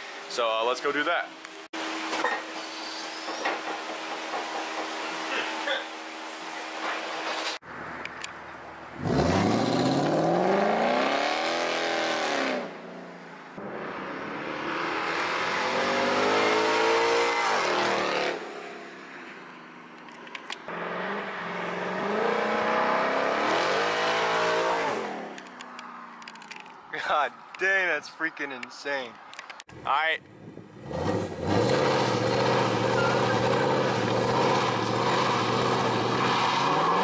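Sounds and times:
car engine accelerating past: 0:14.2 - 0:18.4.

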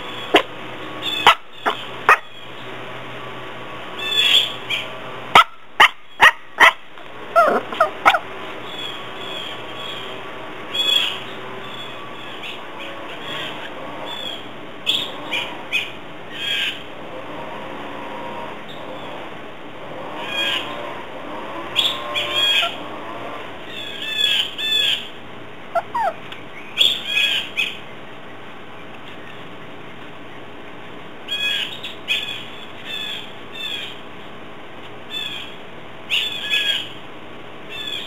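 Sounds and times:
puppy yapping: 0:07.4 - 0:08.2, 0:25.8 - 0:26.2.

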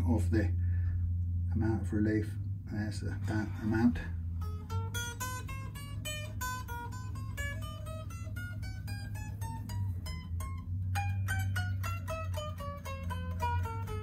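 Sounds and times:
steady low hum: 0:00.0 - 0:14.0
electric guitar picked notes: 0:04.2 - 0:14.0.

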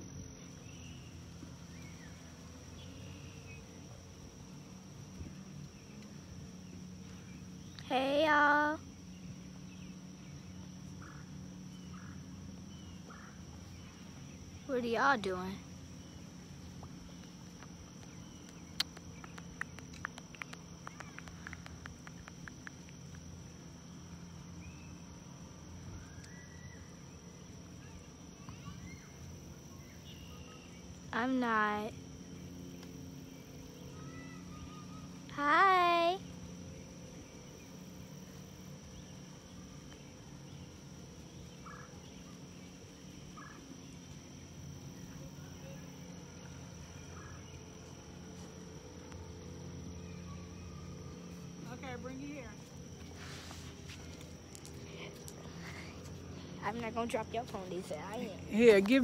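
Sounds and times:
high-pitched insect trill: 0:00.0 - 0:59.0
low outdoor rumble: 0:00.0 - 0:59.0
sharp clicks: 0:18.0 - 0:23.2.

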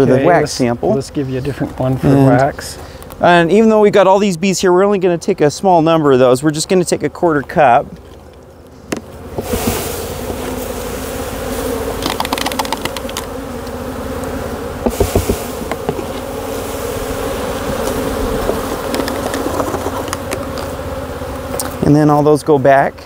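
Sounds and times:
bees buzzing: 0:00.0 - 0:23.0
sharp clicks and knocks: 0:12.0 - 0:13.3, 0:17.7 - 0:20.7.

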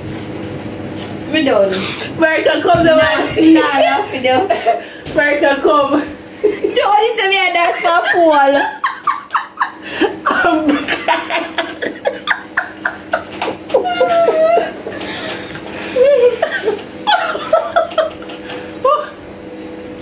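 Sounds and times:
woman laughing: 0:02.9 - 0:05.0, 0:05.9 - 0:07.0, 0:07.6 - 0:19.2.

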